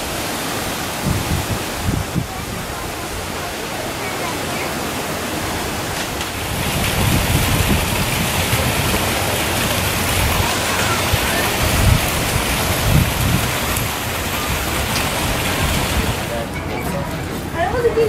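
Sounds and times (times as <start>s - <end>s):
waterfall pouring into pool: 0.0s - 16.4s
low rumbles: 5.2s - 18.0s.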